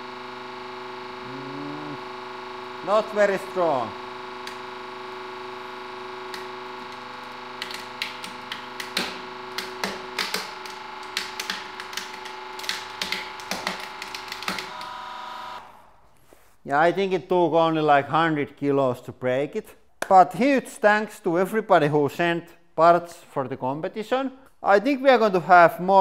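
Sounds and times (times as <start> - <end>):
hydraulic press humming: 0.0 - 16.0.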